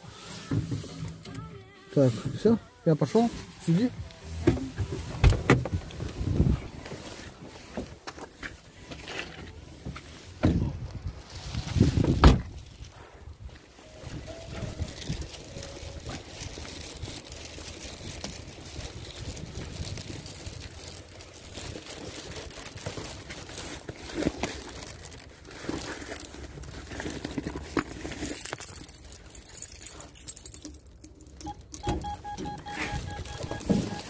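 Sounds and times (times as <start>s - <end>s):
wind rumbling on microphone: 4.8s - 6.9s, 10.4s - 21.5s
keys jangling: 28.2s - 32.3s
door intercom beep: 31.4s - 34.0s.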